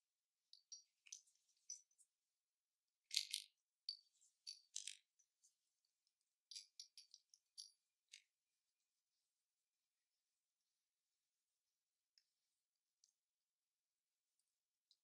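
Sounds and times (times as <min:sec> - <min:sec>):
small metal clicks and clinks: 0:00.5 - 0:02.1, 0:03.1 - 0:08.3.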